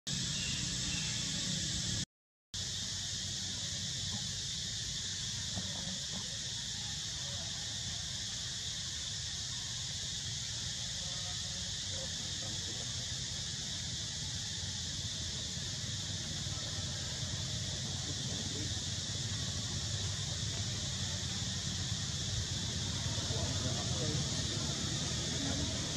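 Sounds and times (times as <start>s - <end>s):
high-pitched insect drone: 0.1s - 2.0s, 2.6s - 25.9s.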